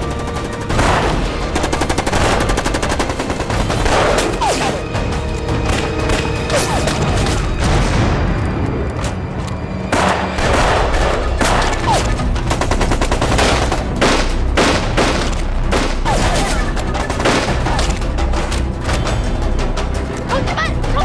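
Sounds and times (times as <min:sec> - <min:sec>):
rapid gunshots: 0:00.0 - 0:04.9, 0:09.9 - 0:18.0.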